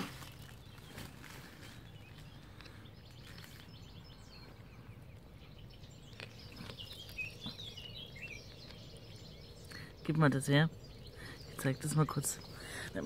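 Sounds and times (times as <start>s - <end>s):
faint birdsong: 0.0s - 13.0s
cat chewing crunches: 6.0s - 7.6s.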